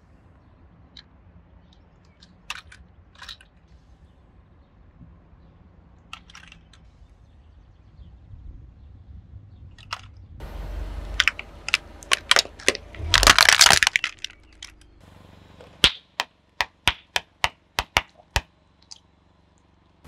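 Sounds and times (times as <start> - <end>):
low steady rumble: 0.0 - 20.0
items cracking under car wheel: 11.0 - 15.0.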